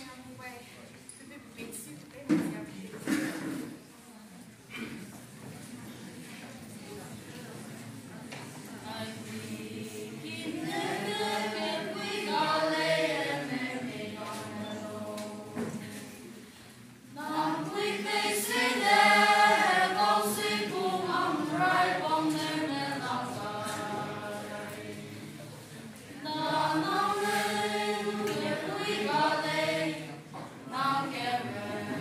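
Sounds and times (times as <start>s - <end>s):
children's choir singing: 8.7s - 32.0s.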